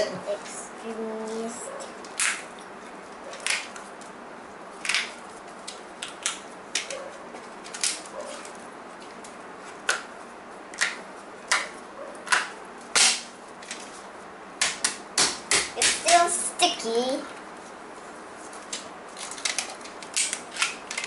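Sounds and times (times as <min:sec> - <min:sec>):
sticky dart tips snapping off: 0:12.3 - 0:13.3, 0:14.6 - 0:16.3.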